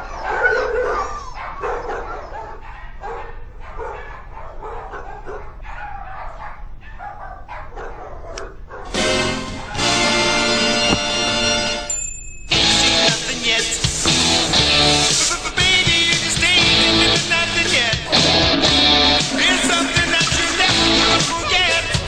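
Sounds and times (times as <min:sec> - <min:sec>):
dogs barking and yipping: 0:00.0 - 0:11.4
loud music: 0:08.9 - 0:11.9, 0:12.5 - 0:22.0.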